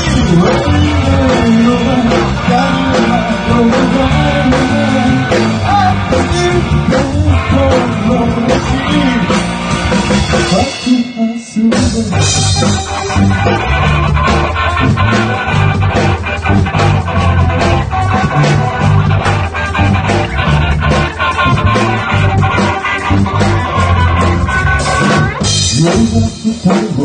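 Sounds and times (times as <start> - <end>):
man singing: 0.0 - 9.5, 10.3 - 13.2, 25.4 - 27.0
live rock band playing: 0.0 - 27.0.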